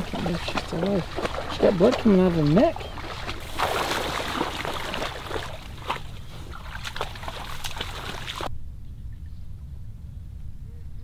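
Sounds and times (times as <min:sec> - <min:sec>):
reeds rustling: 0:00.0 - 0:08.5
water sloshing and splashing: 0:00.0 - 0:08.5.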